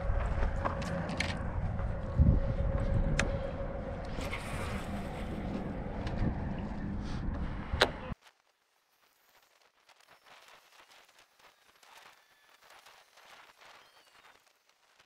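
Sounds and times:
footsteps on stony dirt: 0.0s - 2.2s
wind buffeting microphone: 0.0s - 8.2s.

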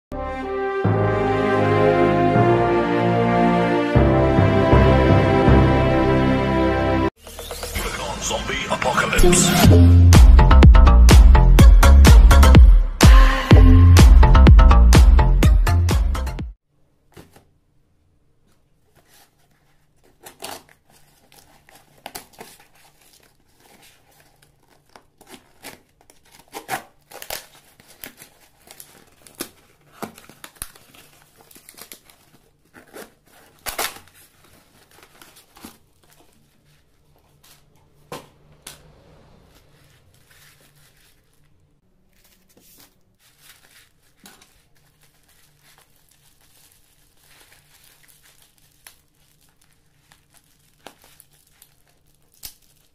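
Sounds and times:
bubble wrap crinkling: 18.6s - 38.1s, 39.5s - 52.9s
tape and cardboard ripping: 20.1s - 23.4s, 24.2s - 36.4s, 47.4s - 52.9s.

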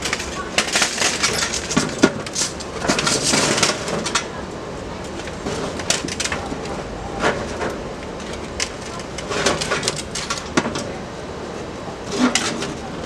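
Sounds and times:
metal auger clanking and scraping: 12.1s - 12.9s.

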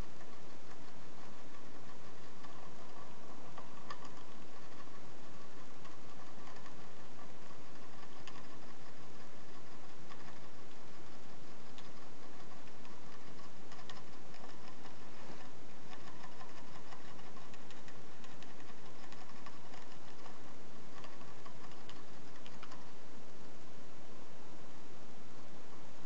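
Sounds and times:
hamster licking water bottle spout: 0.0s - 23.0s.

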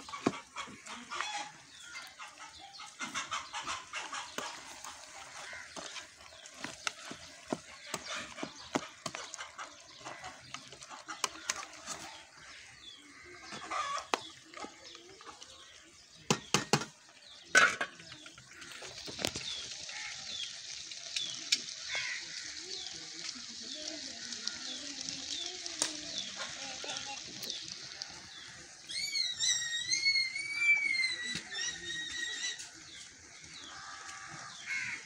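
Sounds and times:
stew simmering and sizzling: 0.0s - 35.0s
bird chirps: 26.1s - 33.8s.

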